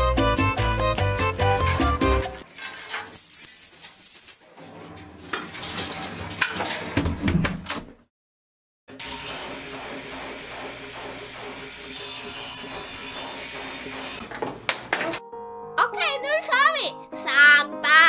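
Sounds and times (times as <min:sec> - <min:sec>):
chain rattling against metal railing: 0:00.6 - 0:04.6.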